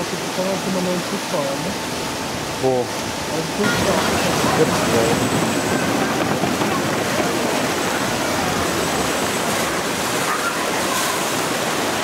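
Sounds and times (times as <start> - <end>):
raft sliding through water: 0.0 - 12.0
water rushing in a flume: 0.0 - 12.0.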